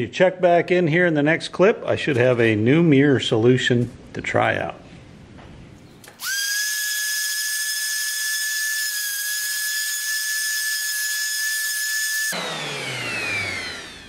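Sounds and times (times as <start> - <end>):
orbital sander whine: 6.2 - 14.0.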